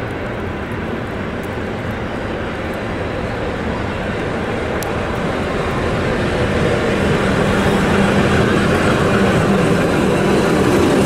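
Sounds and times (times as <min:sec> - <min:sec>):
diesel locomotive engine drone: 0:00.0 - 0:11.0.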